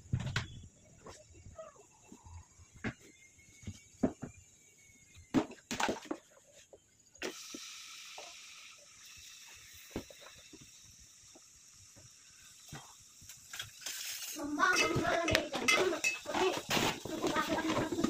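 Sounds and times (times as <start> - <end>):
onions sizzling in hot oil: 7.1 - 18.0
knocks and clatters in pot: 14.6 - 18.0.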